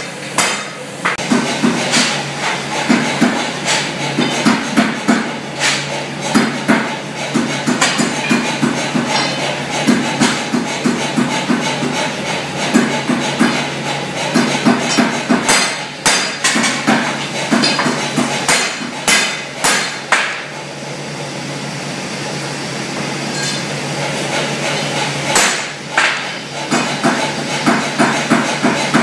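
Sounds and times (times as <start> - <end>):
hammer striking steel bar: 0.0 - 11.7, 14.3 - 20.5, 25.3 - 29.0.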